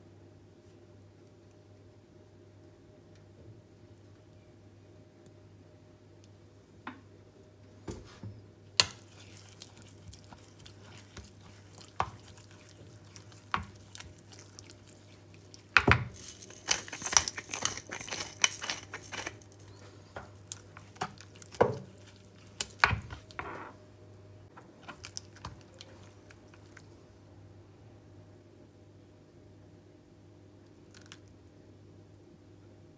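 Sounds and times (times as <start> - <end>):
pepper mill grinding: 8.8 - 19.8
metal spoon scraping bowl: 16.1 - 19.4.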